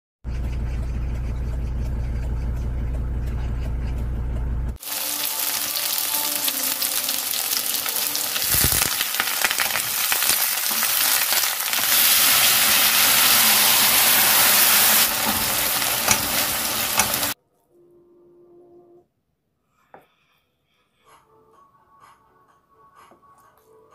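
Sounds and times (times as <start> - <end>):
low steady rumble: 0.3 - 4.8
food sizzling in a frying pan: 4.8 - 17.4.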